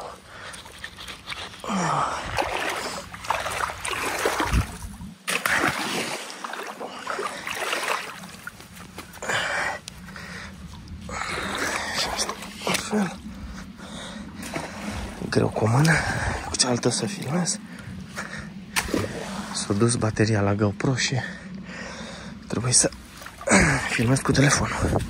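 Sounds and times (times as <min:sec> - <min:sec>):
river water splashing: 0:00.0 - 0:20.0, 0:22.6 - 0:25.0.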